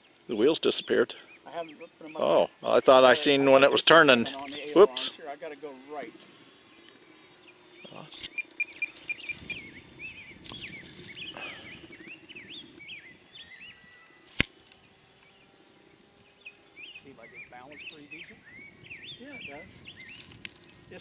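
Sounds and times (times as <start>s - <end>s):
faint steady hum: 0.0s - 21.0s
small bird chirping: 6.0s - 21.0s.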